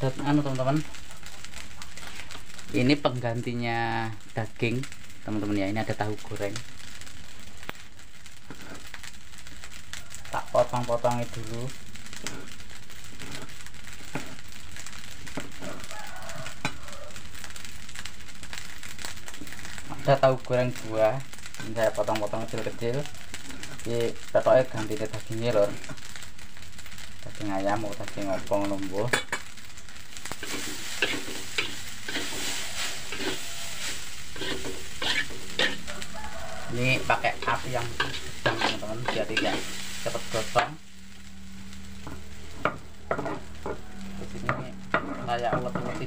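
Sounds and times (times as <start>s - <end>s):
crackling hiss: 0.0s - 46.0s
rice sizzling in a wok: 0.0s - 46.0s
metal spatula scraping pan: 30.4s - 36.1s, 36.7s - 40.8s, 42.0s - 46.0s.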